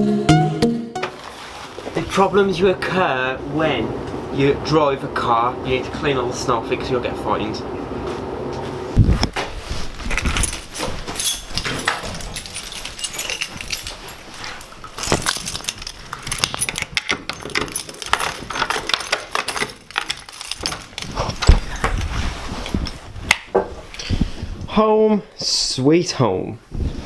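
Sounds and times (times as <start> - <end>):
keys jangling in a door lock: 10.1 - 22.0.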